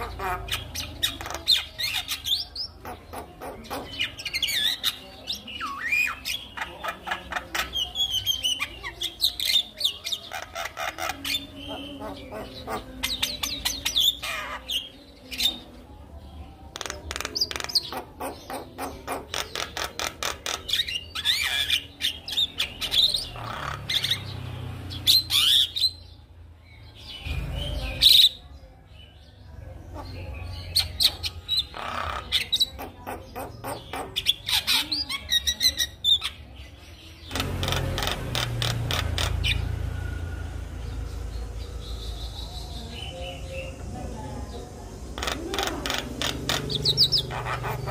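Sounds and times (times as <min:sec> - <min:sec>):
myna singing chattering song: 0:05.5 - 0:20.4.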